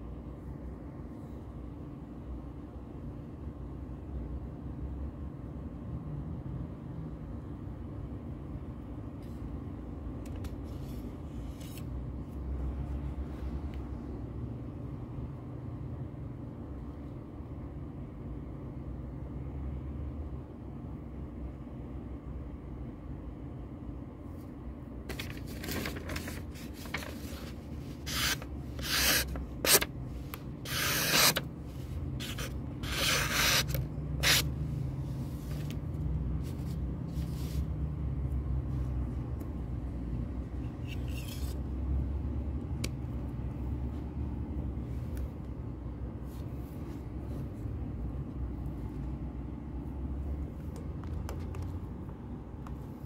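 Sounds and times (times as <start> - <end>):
low steady hum: 0.0 - 53.0
handling rubbing and scraping: 25.1 - 35.7.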